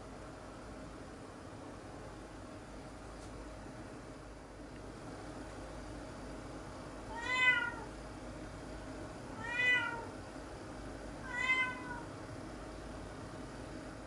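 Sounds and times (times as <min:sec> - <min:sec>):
cat meowing: 0:07.1 - 0:07.9, 0:09.4 - 0:10.1, 0:11.2 - 0:12.1.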